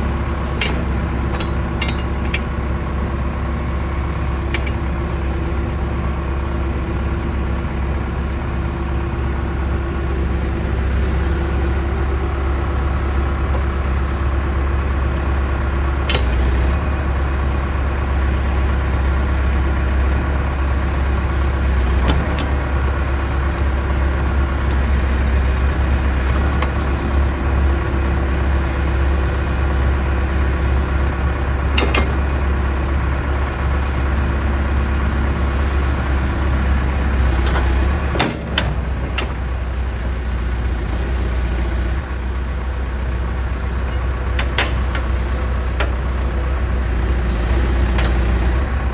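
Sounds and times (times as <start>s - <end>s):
diesel engine running: 0.0s - 48.9s
hydraulic boom and bucket working: 0.0s - 48.9s
sharp metal clunks: 0.4s - 2.6s, 4.4s - 5.0s, 37.4s - 39.4s.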